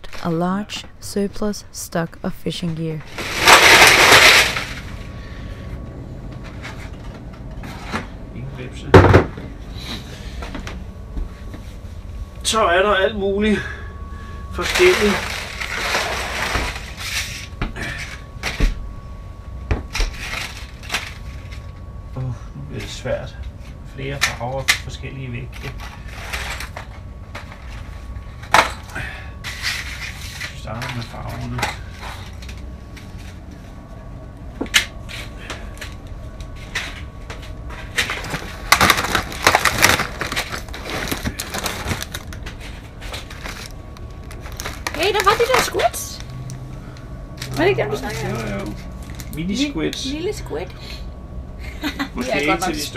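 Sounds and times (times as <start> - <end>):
plastic packs crackling: 3.1 - 5.0, 14.6 - 17.0, 38.0 - 46.6, 47.4 - 49.6.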